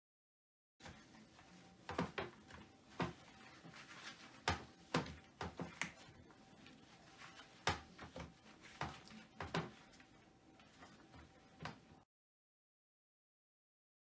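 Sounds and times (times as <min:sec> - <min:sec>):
clicks and knocks cleaning toilet: 0:01.8 - 0:03.3.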